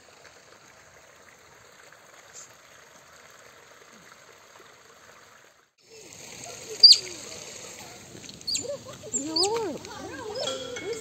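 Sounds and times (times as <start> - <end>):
outdoor background noise: 0.0 - 11.0
water trickling: 0.0 - 11.0.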